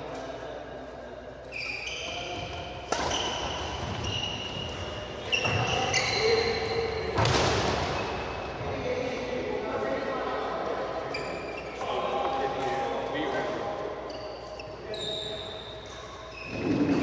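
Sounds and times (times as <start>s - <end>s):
sports shoes squeaking on court: 1.5s - 8.6s, 11.0s - 11.9s, 14.0s - 17.0s
racket hitting shuttlecock: 2.4s - 5.7s, 7.2s - 8.0s.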